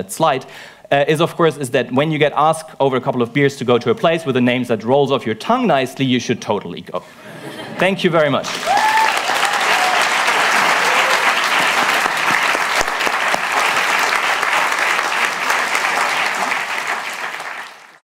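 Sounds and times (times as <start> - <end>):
audience applauding: 8.4 - 18.0.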